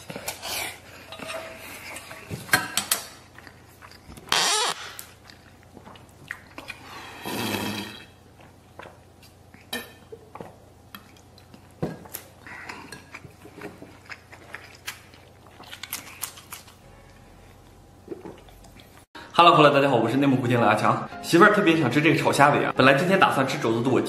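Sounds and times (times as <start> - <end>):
quiet chewing: 3.2 - 19.1.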